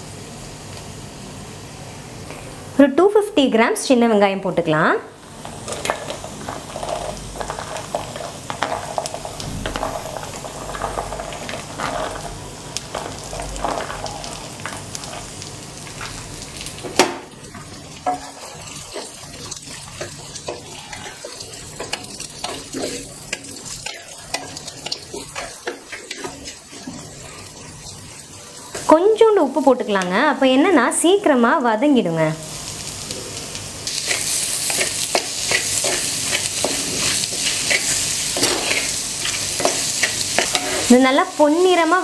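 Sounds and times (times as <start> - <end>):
shallots sizzling in hot oil: 0.0 - 42.0.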